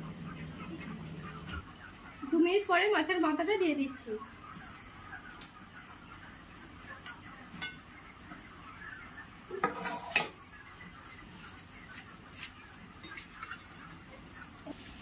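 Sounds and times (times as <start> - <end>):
metal spoon stirring in a pan: 9.5 - 10.4, 11.5 - 14.2.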